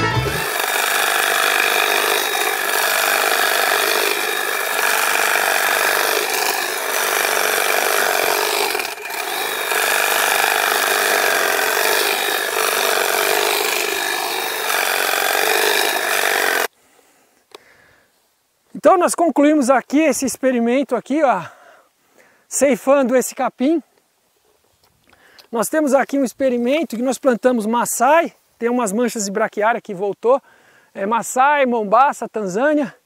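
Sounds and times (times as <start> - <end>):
hedge trimmer cutting grass: 0.1 - 16.7.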